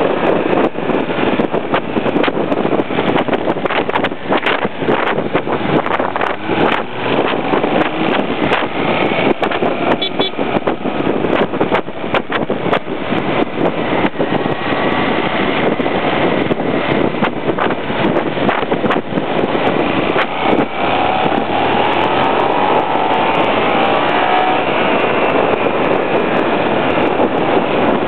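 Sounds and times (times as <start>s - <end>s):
road noise: 0.0s - 28.0s
wind buffeting microphone: 0.0s - 28.0s
motorcycle engine: 15.2s - 26.9s.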